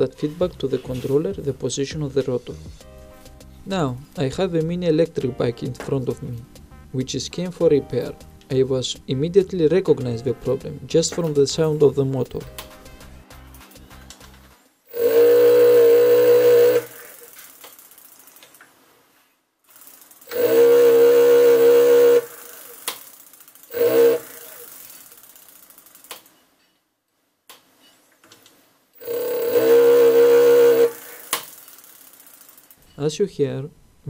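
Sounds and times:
hub motor loud droning: 14.9 - 17.4, 20.3 - 22.9, 23.7 - 25.1, 29.0 - 31.8
wheel ticking: 14.9 - 18.6, 19.7 - 26.3, 29.0 - 32.8.

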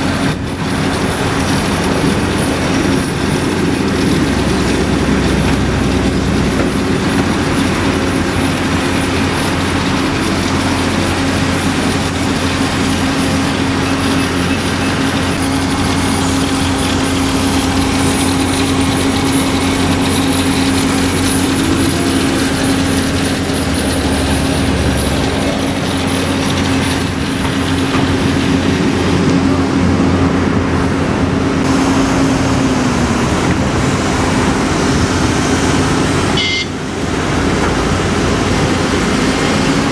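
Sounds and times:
excavator engine and hydraulics drone: 0.0 - 39.9.

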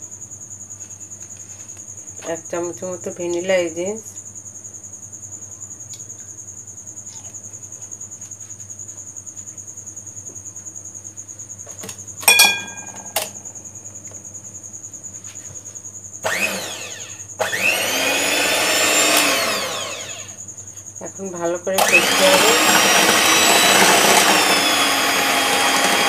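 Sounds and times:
crickets chirping: 0.0 - 26.0
electric hand mixer whining: 16.2 - 20.4, 21.8 - 26.0.

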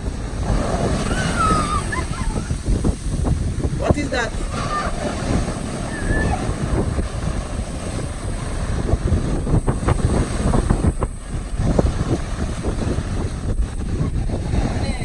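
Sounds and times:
ocean surf breaking: 0.0 - 15.0
wind buffeting the microphone: 0.0 - 15.0.

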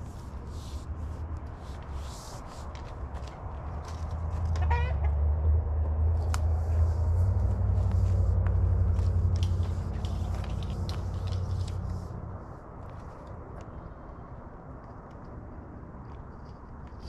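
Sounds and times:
vehicle engine droning: 0.0 - 16.3
light clicks and rustles: 6.2 - 12.2.

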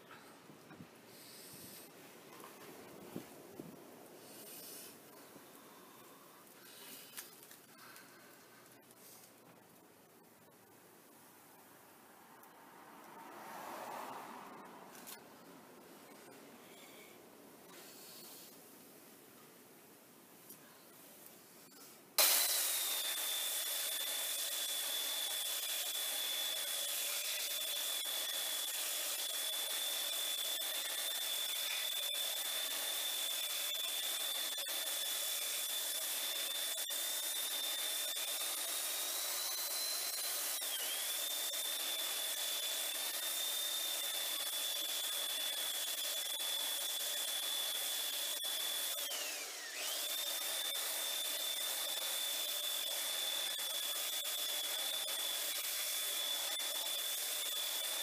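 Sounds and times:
belt sander on wood: 22.2 - 58.0.

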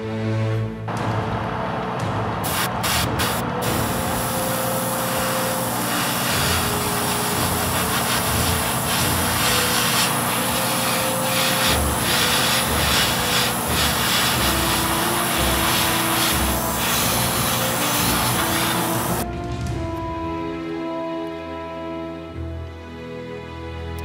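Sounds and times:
rubbing noise: 5.2 - 19.2.

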